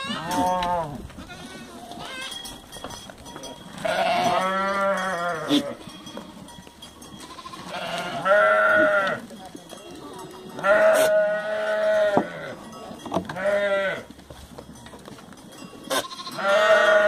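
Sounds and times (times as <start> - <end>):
goats bleating: 0.0 - 2.6, 3.6 - 9.4, 10.0 - 12.7, 13.3 - 14.2, 15.8 - 17.0.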